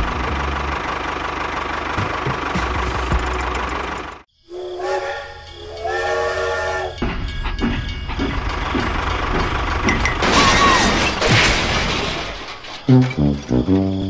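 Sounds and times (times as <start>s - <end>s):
toy train running rumble: 0.0s - 10.8s
toy train whistle: 4.5s - 7.0s.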